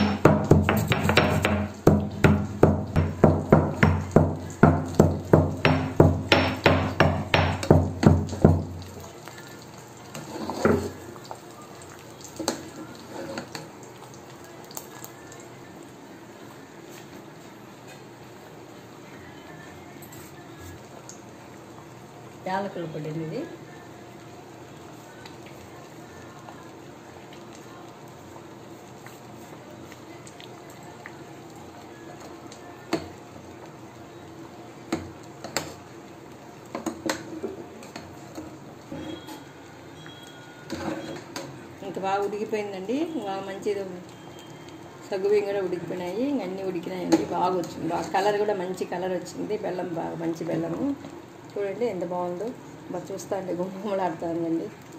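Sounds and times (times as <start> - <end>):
ladle knocking against pot: 0.0 - 8.7
ladle stirring liquid: 0.0 - 15.4.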